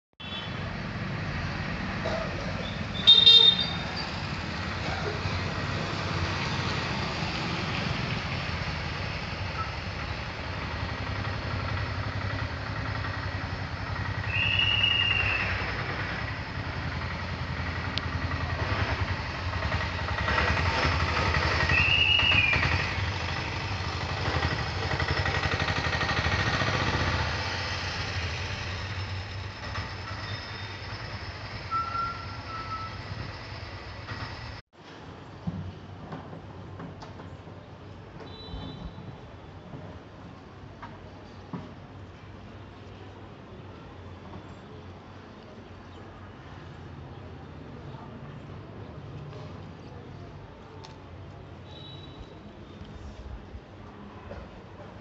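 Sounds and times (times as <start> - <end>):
street traffic noise: 0.2 - 55.0
car horn blast: 3.0 - 3.7.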